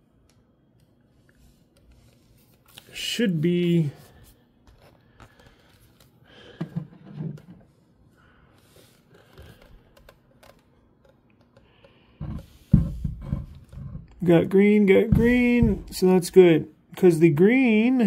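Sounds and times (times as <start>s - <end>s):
plastic cable clicks and rattles: 9.3s - 11.7s
dull bump: 15.0s - 16.0s.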